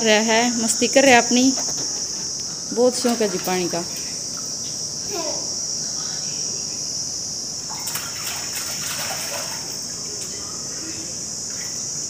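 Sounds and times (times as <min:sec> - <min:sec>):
crickets chirring: 0:00.0 - 0:12.0
water splashing in metal tub: 0:02.8 - 0:04.5, 0:07.7 - 0:10.3
child vocal sound: 0:05.1 - 0:05.6.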